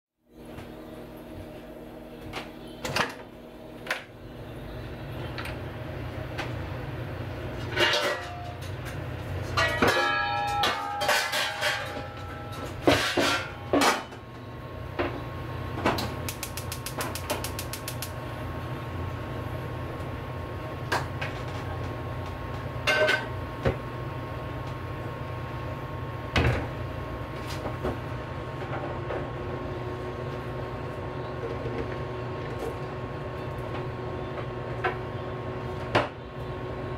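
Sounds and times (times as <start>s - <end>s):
steady low hum: 0.3s - 36.9s
iron pan clattering on metal grate: 7.7s - 8.7s, 9.6s - 14.1s.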